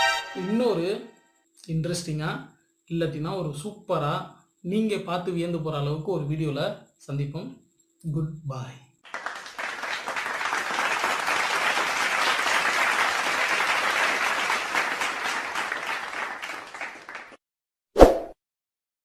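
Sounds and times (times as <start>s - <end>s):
crowd clapping: 9.0s - 17.4s.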